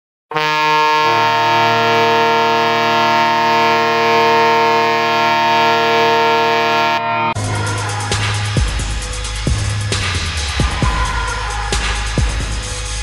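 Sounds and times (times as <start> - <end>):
arena goal horn blast: 0.3 - 7.4.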